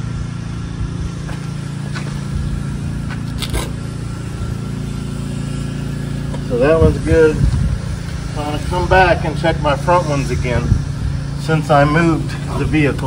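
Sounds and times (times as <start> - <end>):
low motor hum: 0.0 - 13.0
brief scrape: 3.3 - 3.8.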